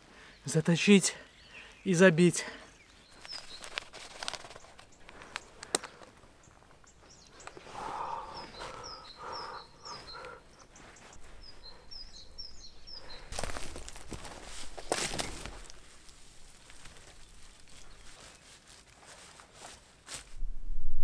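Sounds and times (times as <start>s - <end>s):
songbird chirping: 0.0s - 19.4s
faint clicks: 4.7s - 6.2s.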